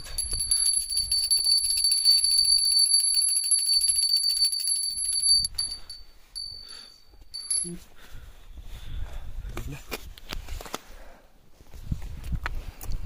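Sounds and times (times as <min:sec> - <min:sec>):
hand bell ringing rapidly: 0:00.0 - 0:07.8.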